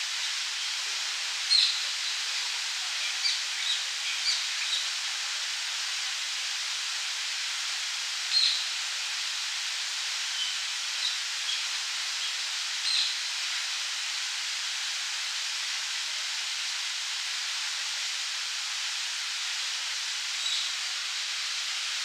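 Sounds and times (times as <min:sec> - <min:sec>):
fountain water splashing: 0:00.0 - 0:22.0.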